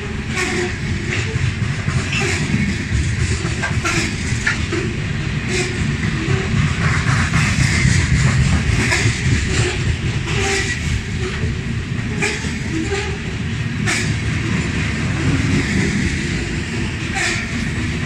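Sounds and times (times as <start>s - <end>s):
freight train wheels rumbling on rail: 0.0s - 18.0s
train clicks and squeaks: 0.0s - 18.0s.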